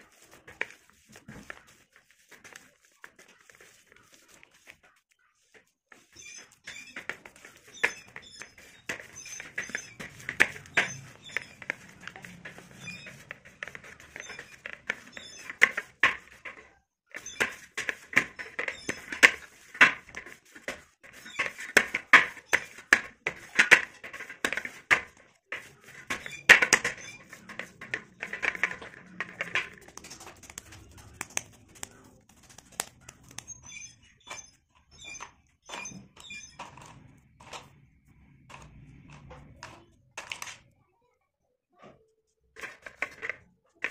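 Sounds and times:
hands kneading clay dough: 0.0 - 33.8.

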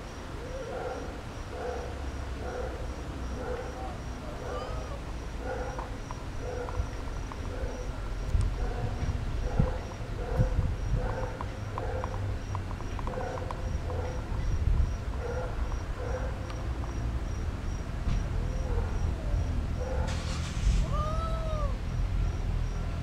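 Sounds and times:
cricket chirping: 0.0 - 20.6, 21.5 - 23.0
low microphone rumble: 6.4 - 12.5, 13.1 - 16.3.

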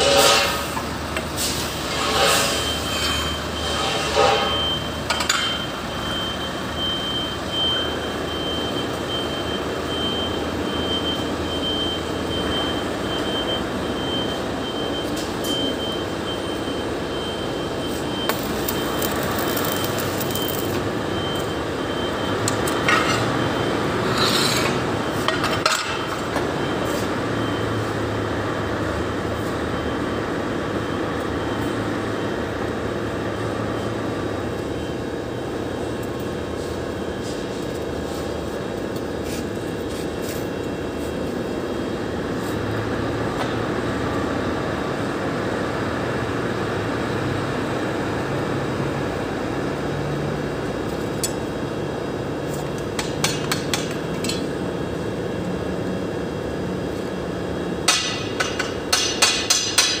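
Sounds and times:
hammer tapping on steel: 53.0 - 54.4, 57.9 - 60.0.

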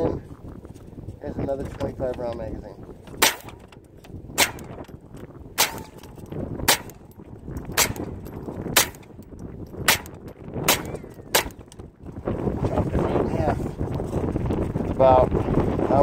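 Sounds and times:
rifle shots: 3.2 - 3.7, 4.3 - 4.8, 5.6 - 7.0, 7.7 - 8.2, 8.8 - 9.1, 9.8 - 11.7.

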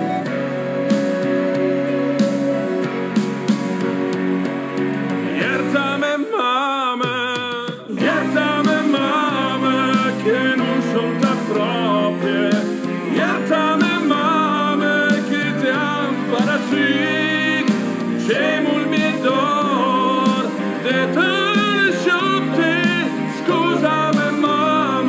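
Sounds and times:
sustained instrumental accompaniment: 0.0 - 6.1, 8.0 - 25.0
man singing slow song: 5.3 - 25.0.

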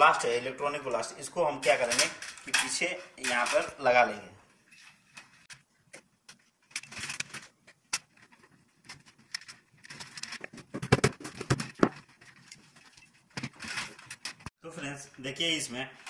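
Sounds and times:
handling clicks and knocks on metal: 1.6 - 3.8, 4.7 - 14.5.

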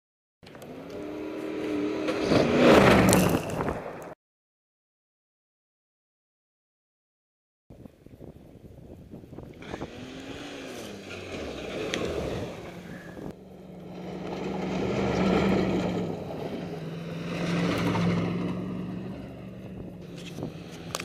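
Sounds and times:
pickup truck engine driving: 9.4 - 21.0.

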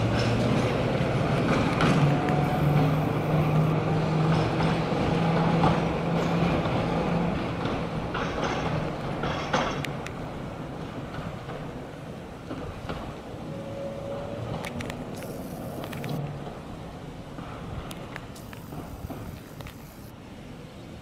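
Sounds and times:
tram hum on track: 0.0 - 21.0
sharp clicks: 14.6 - 16.3, 17.9 - 20.1.

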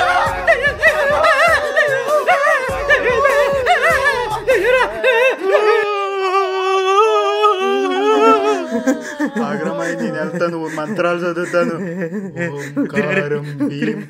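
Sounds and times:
high wordless singing voice: 0.0 - 14.0.

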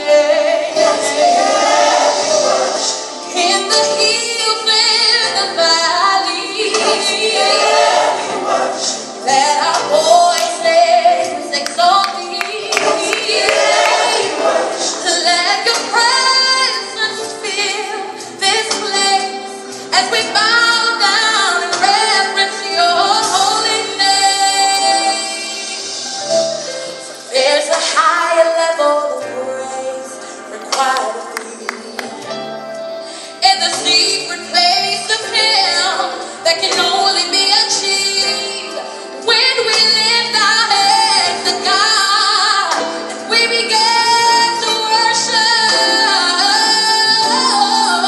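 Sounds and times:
woman singing gospel song: 0.0 - 26.1, 27.3 - 32.3, 33.3 - 48.0.

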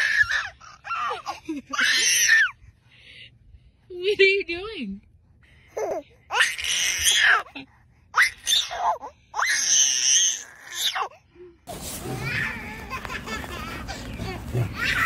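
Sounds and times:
baby squealing: 8.2 - 11.1, 12.1 - 15.0.

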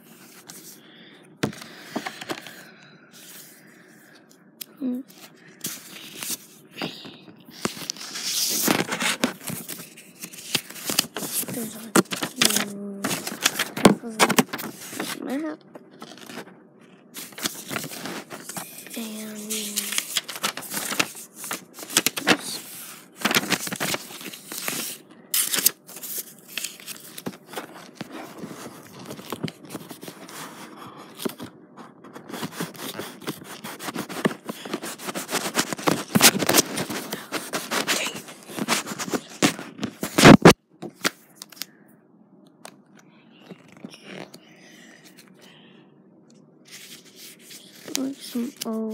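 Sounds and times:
paper rustling and scraping: 5.1 - 6.9, 7.5 - 16.5, 17.1 - 41.7, 46.6 - 48.9.

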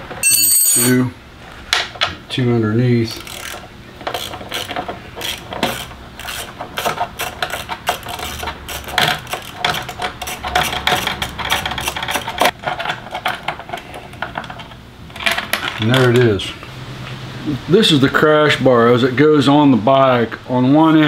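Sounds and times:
socket ratchet clicking: 3.2 - 12.5.

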